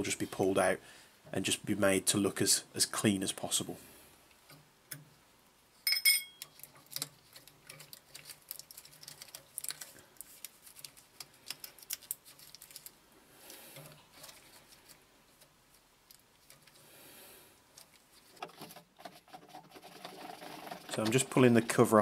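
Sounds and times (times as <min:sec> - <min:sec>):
ringing metallic clatter: 0:05.8 - 0:06.4
wiring and connectors clicking: 0:06.4 - 0:13.0.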